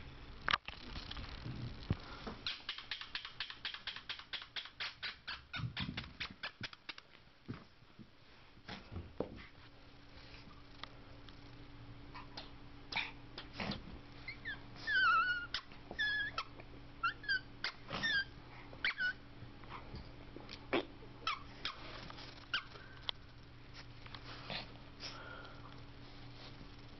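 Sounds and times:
dog whimpering: 14.2 - 19.2.

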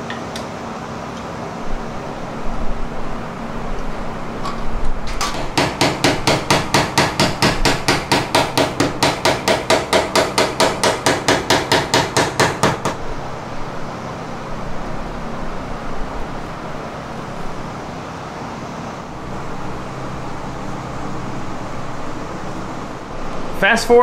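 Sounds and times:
hammer tapping metal punch: 5.1 - 13.0.

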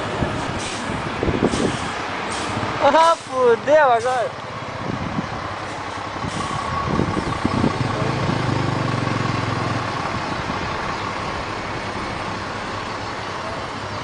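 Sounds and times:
bus diesel engine running: 0.0 - 14.0.

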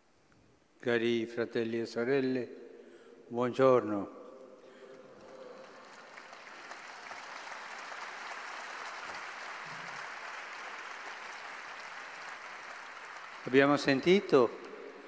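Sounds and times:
crowd applauding: 5.0 - 15.0.

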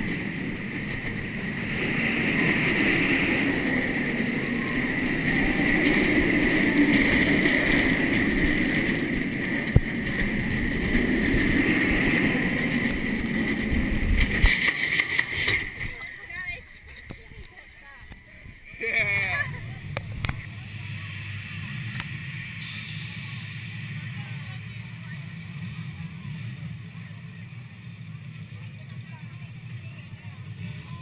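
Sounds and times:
wind rushing: 0.0 - 15.0
roller coaster train on track: 0.0 - 31.0.

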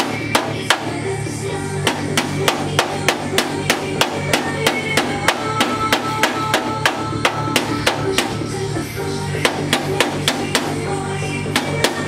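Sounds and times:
music with drums bass and guitar: 0.0 - 12.0.

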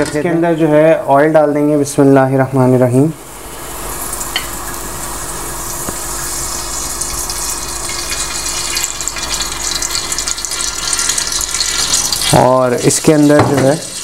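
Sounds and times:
oil pouring into pot: 6.0 - 14.0.

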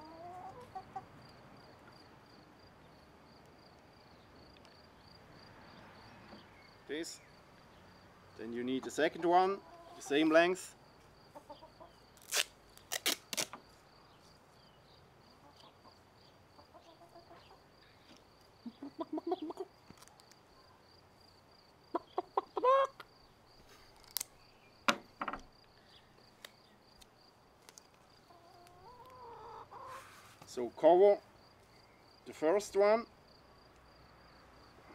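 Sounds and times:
hens clucking: 0.0 - 1.2, 8.6 - 10.5, 11.3 - 12.0, 15.4 - 17.7, 18.6 - 19.8, 21.9 - 23.1, 28.2 - 30.1.

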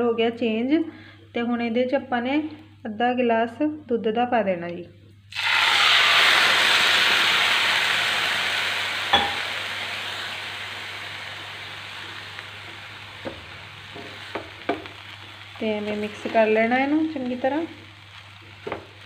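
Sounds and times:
milk sizzling in hot pan: 5.3 - 19.0
spatula knocking: 18.6 - 18.9.

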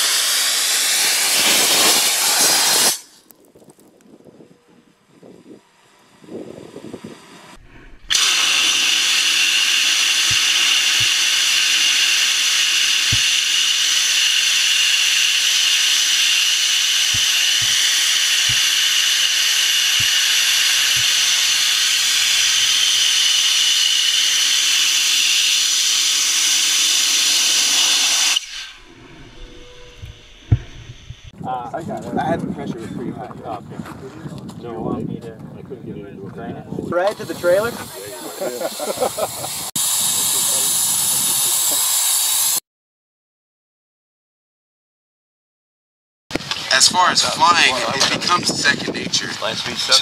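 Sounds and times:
jetpack hissing scream: 8.1 - 28.7.

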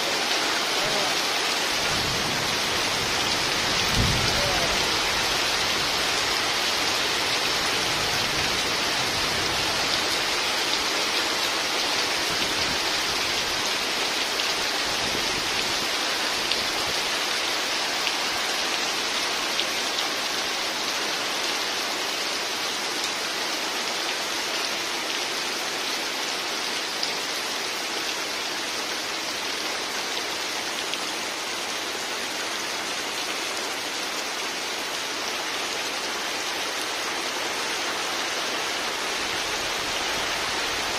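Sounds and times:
heavy rain on water and roofs: 0.0 - 40.9.

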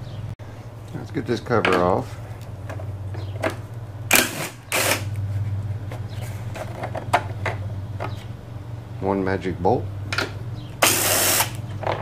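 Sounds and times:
steady low hum: 0.0 - 11.9
cordless drill spinning: 4.2 - 5.2, 10.8 - 11.6.

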